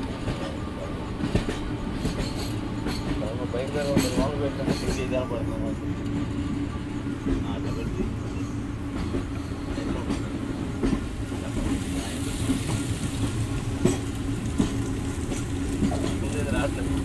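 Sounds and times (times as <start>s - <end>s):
train rumbling: 0.0s - 17.0s
wheels knocking on rail joints: 12.5s - 17.0s.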